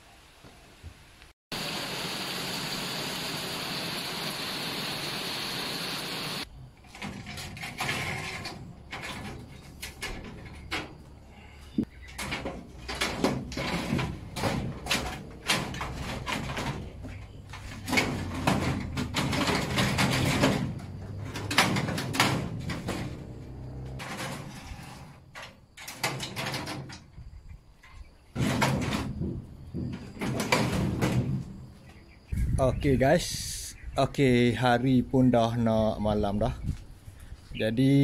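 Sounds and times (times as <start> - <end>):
metal drawers sliding on rails: 6.8 - 11.0, 12.1 - 26.9.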